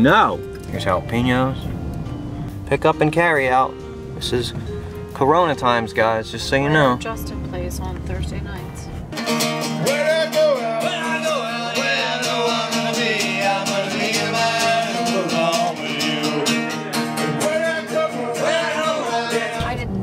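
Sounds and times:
strummed acoustic guitar: 0.0 - 20.0
man singing: 9.6 - 19.9.

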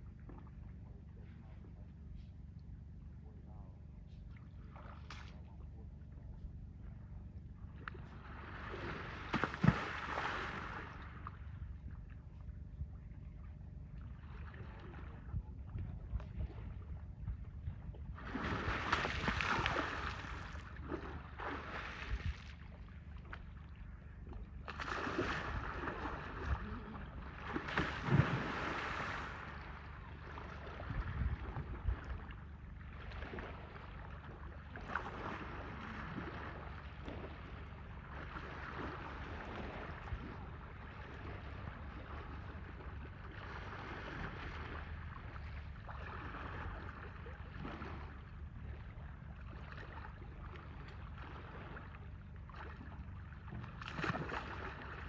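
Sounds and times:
water splashing and sloshing: 0.0 - 3.4, 4.1 - 55.0
wind on microphone: 14.6 - 20.5, 30.8 - 32.2.

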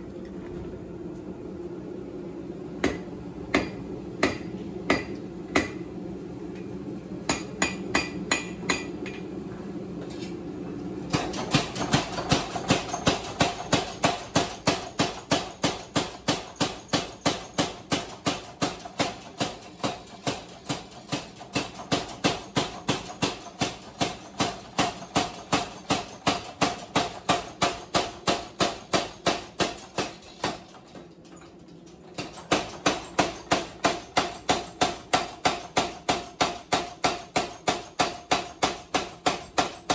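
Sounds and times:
hammer blows on anvil: 7.3 - 9.3
power hammer pounding: 11.1 - 30.8.

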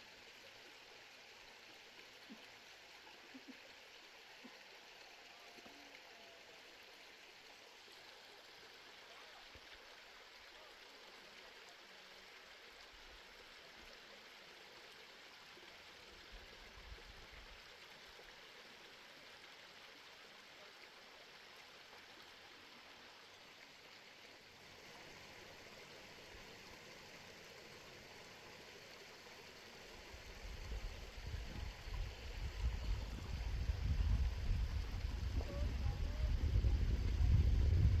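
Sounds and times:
faint hiss: 0.0 - 38.0.

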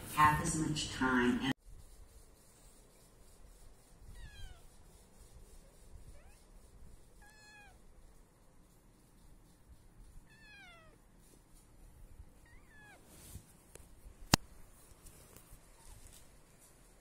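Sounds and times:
kitten mewing: 10.3 - 11.0.

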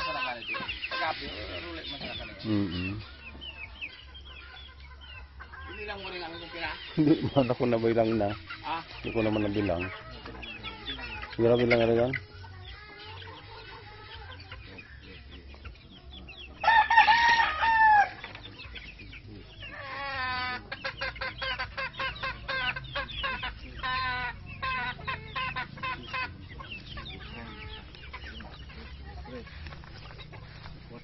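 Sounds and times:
chickens clucking: 0.0 - 31.0
rooster crowing: 16.6 - 18.2.

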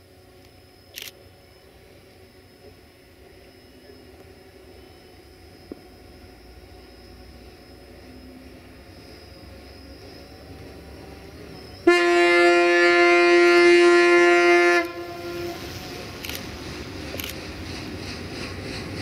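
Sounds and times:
railcar diesel engine running: 0.0 - 19.0
train horn long blast: 11.8 - 16.2.

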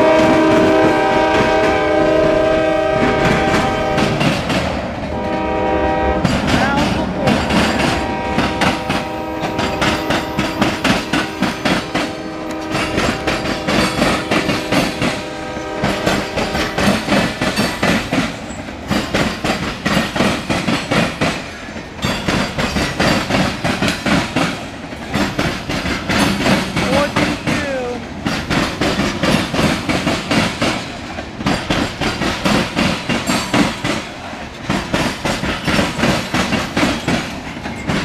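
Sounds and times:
train horn: 0.0 - 4.4, 5.1 - 17.4
train wheels clattering over joints: 0.0 - 38.0.

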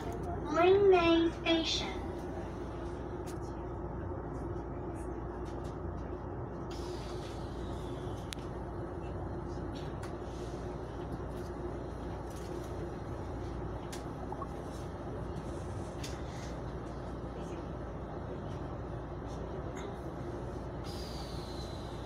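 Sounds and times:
train coach hum and rumble: 0.0 - 22.0
hiss: 20.8 - 22.0.

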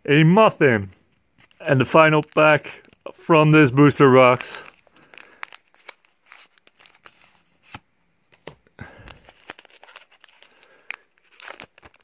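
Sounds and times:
foil wrapper crinkling and tearing: 1.4 - 7.8, 8.8 - 12.0.

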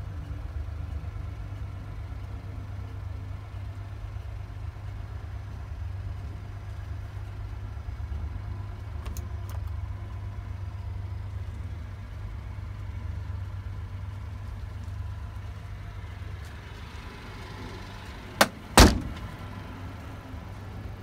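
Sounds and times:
truck engine idling: 0.0 - 21.0
cab door slamming: 18.4 - 19.4.

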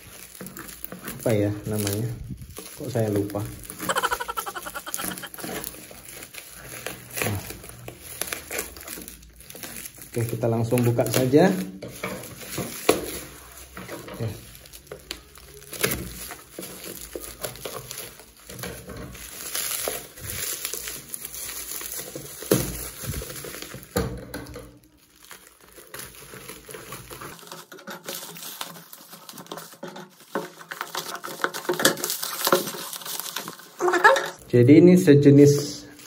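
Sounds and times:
bubble wrap crinkling: 0.0 - 36.0.

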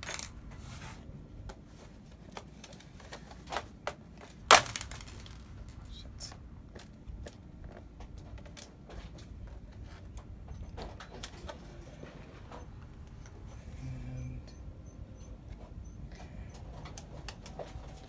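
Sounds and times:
handling noise: 1.6 - 5.8.

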